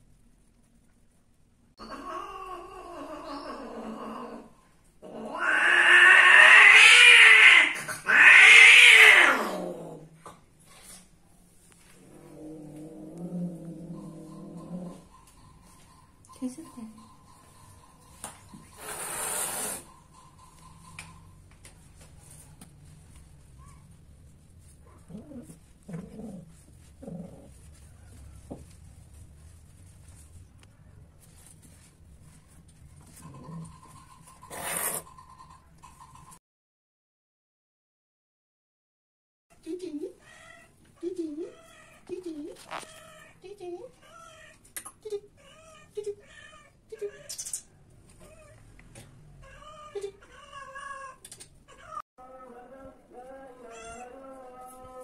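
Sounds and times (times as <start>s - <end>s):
cat yowling: 5.2s - 9.7s.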